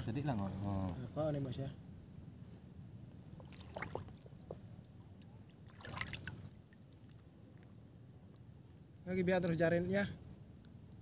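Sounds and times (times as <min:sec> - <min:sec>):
sea water sloshing and splashing: 0:03.3 - 0:07.8.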